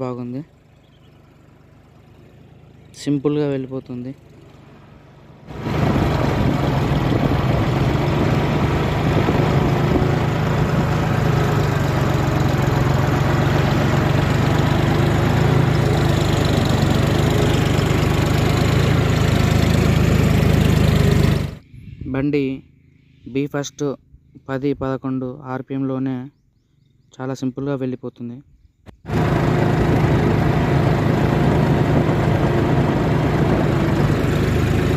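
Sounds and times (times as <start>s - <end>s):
tractor diesel engine under load: 0.0s - 21.6s, 29.1s - 34.9s.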